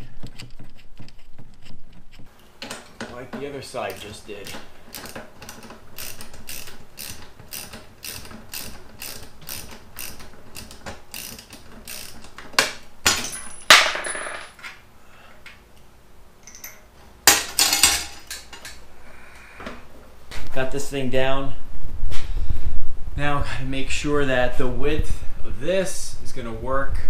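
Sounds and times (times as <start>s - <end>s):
metal clanks and rattles: 0.3s - 14.8s, 16.4s - 18.8s
ratchet wrench clicking: 3.9s - 12.4s.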